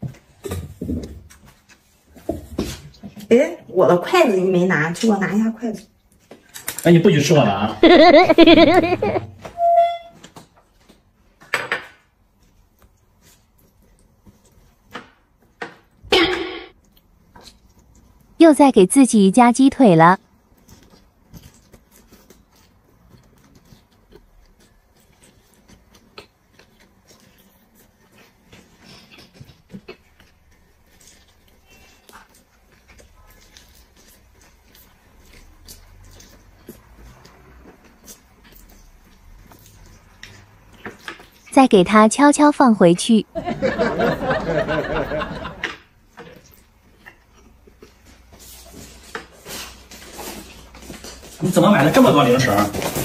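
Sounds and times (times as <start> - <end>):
woman chuckling: 7.8 - 9.3
chewing with wet mouth clicks: 20.6 - 41.5, 46.2 - 48.0.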